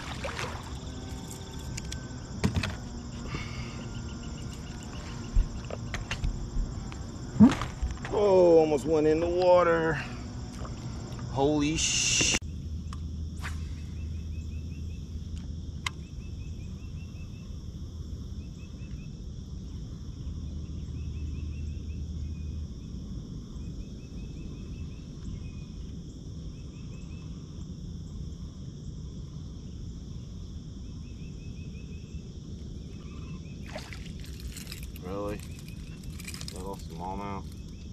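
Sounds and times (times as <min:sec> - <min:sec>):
steady high buzz: 0:00.0 - 0:14.9
insects chirping: 0:00.0 - 0:37.9
low hum: 0:00.0 - 0:37.9.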